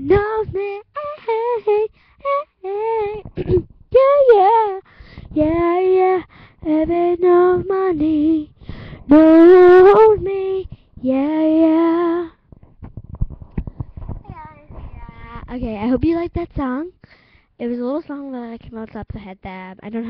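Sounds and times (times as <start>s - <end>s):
girl singing unaccompanied: 0.0s - 12.4s, 14.1s - 17.0s
soft thumps: 12.5s - 16.1s.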